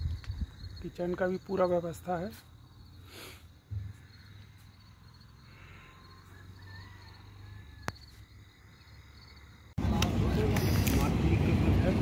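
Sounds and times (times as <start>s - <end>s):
wind noise: 0.0s - 0.8s
faint crickets chirping: 0.0s - 9.8s
loud vehicle noise: 9.8s - 12.0s.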